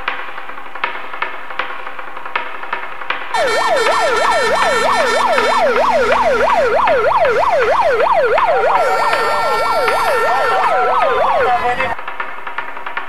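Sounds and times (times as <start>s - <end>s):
electronic siren sweeping: 3.4s - 12.0s
second siren: 3.4s - 12.0s.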